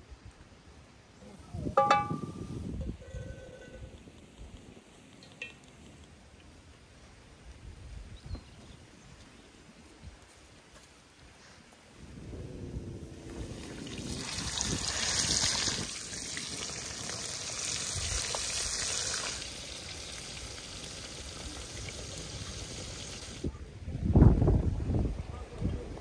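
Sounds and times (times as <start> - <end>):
fish frying in hot oil: 13.3 - 23.4.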